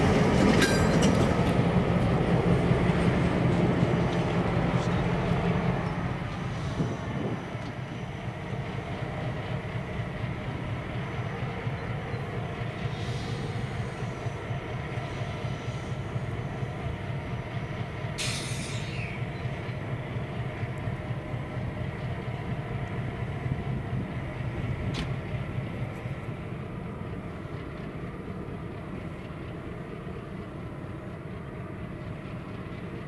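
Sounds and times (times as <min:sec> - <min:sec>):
locomotive engines rumbling: 0:00.0 - 0:33.0
brief high hiss: 0:18.2 - 0:19.2.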